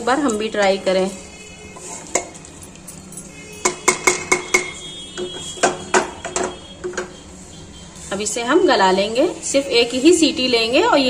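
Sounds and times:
wooden spoon stirring thick food: 0:01.2 - 0:08.3
spoon knocking metal pot: 0:02.0 - 0:02.5, 0:03.3 - 0:07.2.

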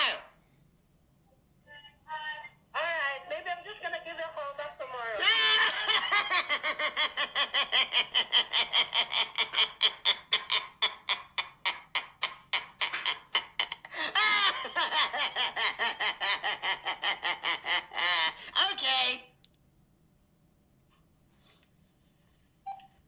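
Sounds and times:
person laughing hard: 0:05.2 - 0:18.6.

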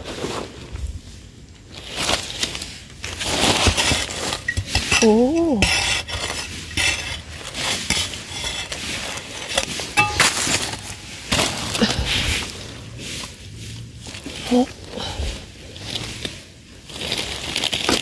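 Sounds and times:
metal spade scraping gritty soil: 0:01.8 - 0:18.0
stones clinking on steel blade: 0:03.7 - 0:08.8, 0:09.6 - 0:11.3.

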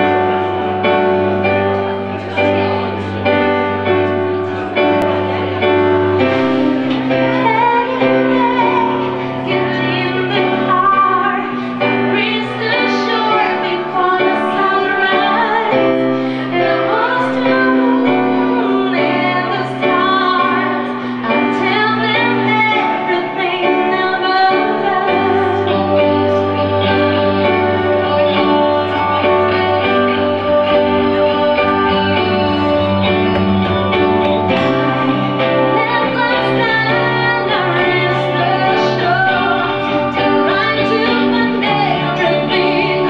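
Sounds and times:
electric guitars: 0:00.0 - 0:43.0
keyboard: 0:00.0 - 0:43.0
woman singing: 0:05.1 - 0:43.0
bass holding long low notes: 0:25.5 - 0:43.0.

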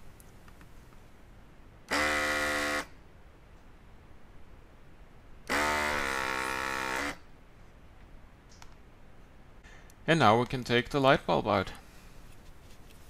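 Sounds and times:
desoldering pump buzzing: 0:01.9 - 0:03.0, 0:05.4 - 0:07.2.

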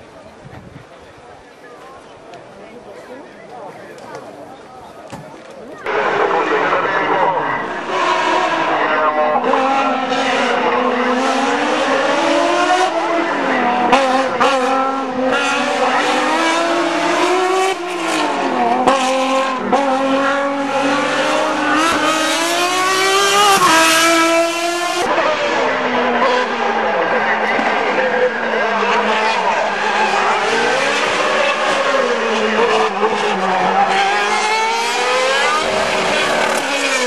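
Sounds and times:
race car engines revving: 0:03.6 - 0:37.0.

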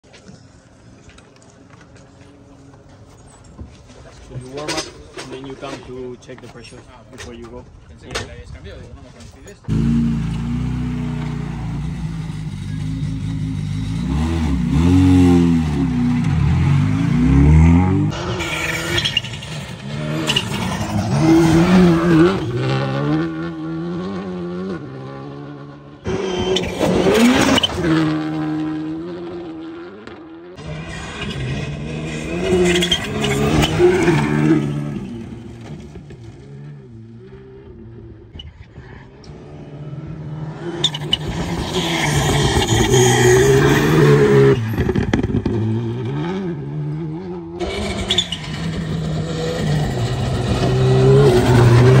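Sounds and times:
car engine revving: 0:09.7 - 0:38.2, 0:39.3 - 0:52.0.

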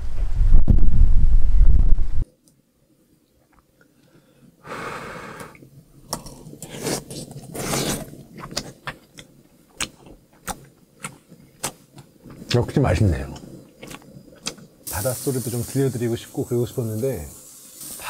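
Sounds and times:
hiss of breath: 0:04.1 - 0:05.6, 0:17.4 - 0:18.0
person sipping or slurping: 0:06.2 - 0:08.1
chewing with sharp clicks: 0:08.4 - 0:11.8, 0:13.4 - 0:14.7.

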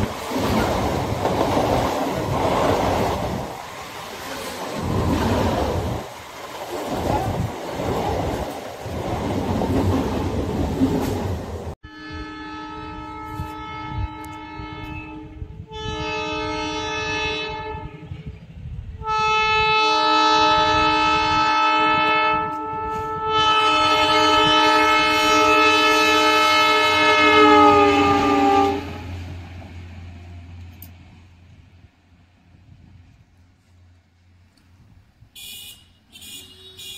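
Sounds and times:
train horn blasts: 0:11.8 - 0:29.2, 0:35.4 - 0:36.9.

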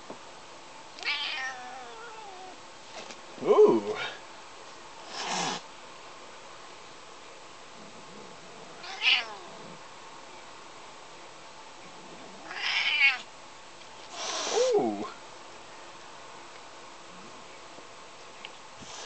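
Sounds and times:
cat meowing yowls: 0:01.0 - 0:02.6, 0:08.8 - 0:09.4, 0:12.5 - 0:13.2.

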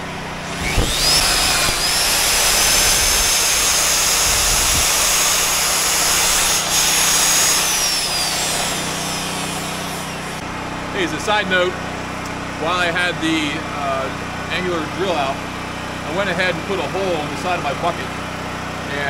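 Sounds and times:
cutter boring through steel: 0:00.4 - 0:10.4
magnetic drill motor whining: 0:00.4 - 0:10.4.

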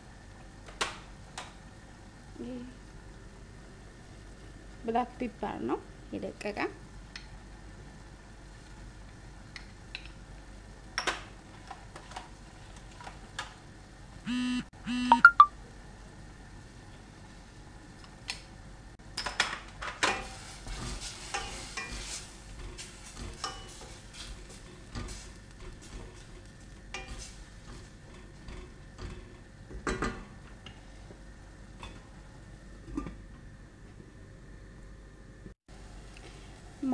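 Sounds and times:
short electronic beeps: 0:14.3 - 0:15.5
wooden spoon scraping a pan: 0:20.2 - 0:28.8.

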